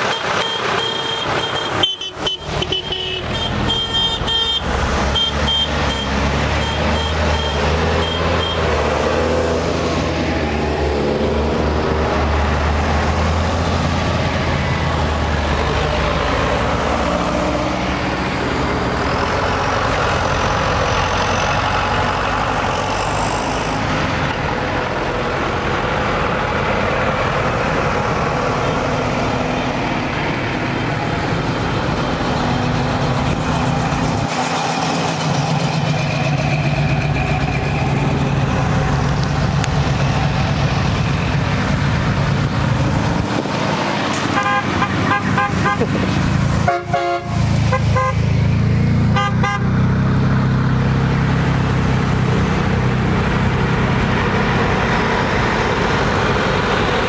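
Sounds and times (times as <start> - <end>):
diesel tractor engine: 0.0 - 57.0
tractors and cars driving past: 0.0 - 57.0.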